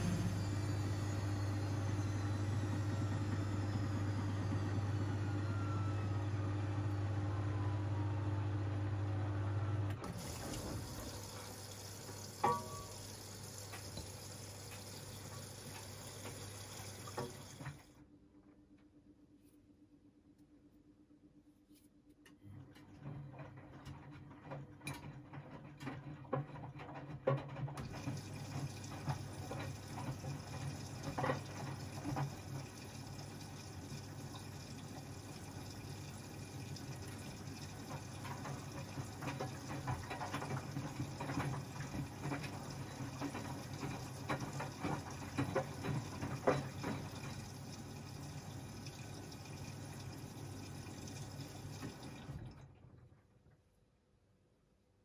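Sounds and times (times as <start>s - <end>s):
washing machine hum: 0.0s - 55.0s
water rushing into drum: 10.0s - 17.8s.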